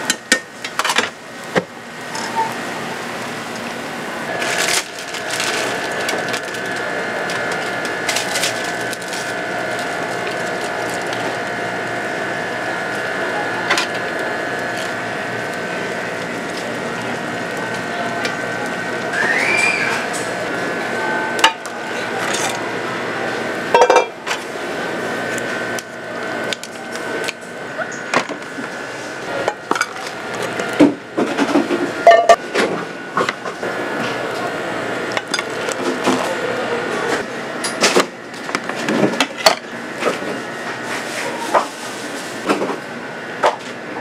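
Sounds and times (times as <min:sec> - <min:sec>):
steady background hum: 0:00.0 - 0:44.0
utensils and pots clinking: 0:21.3 - 0:22.7, 0:23.7 - 0:24.4, 0:29.3 - 0:33.6, 0:35.1 - 0:36.4.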